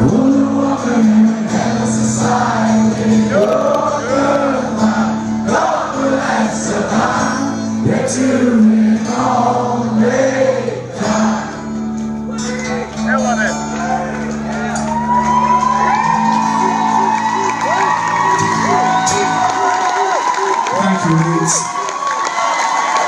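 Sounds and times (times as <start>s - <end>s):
man singing into microphone: 0.0s - 11.7s, 16.2s - 21.7s
acoustic guitar strumming: 0.0s - 21.2s.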